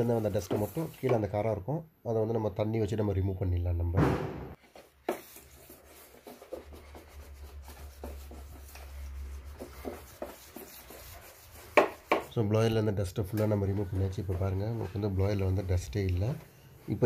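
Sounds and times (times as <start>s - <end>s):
scratchy scraping strokes: 0.0s - 1.1s, 4.6s - 12.5s
sharp knock: 4.0s - 4.6s.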